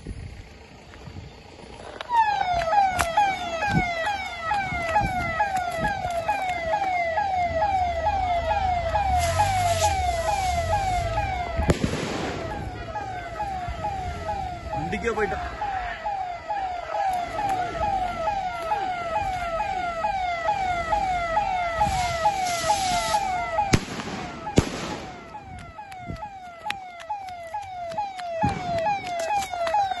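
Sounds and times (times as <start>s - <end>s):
electronic siren falling tone: 1.8s - 30.0s
sharp bangs: 8.5s - 15.8s, 21.8s - 26.2s
rising hiss: 21.9s - 23.4s.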